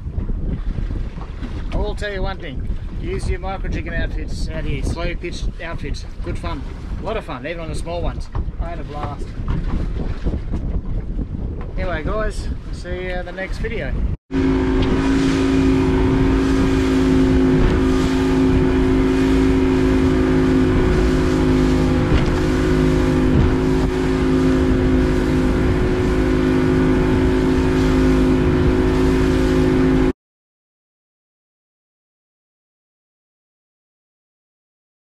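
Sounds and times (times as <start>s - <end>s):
water rushing along hull: 0.0s - 30.2s
motorboat engine drone: 14.3s - 30.1s.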